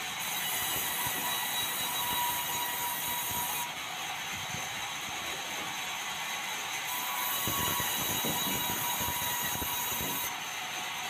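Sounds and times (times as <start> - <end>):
saw ripping a board: 6.9 - 10.4.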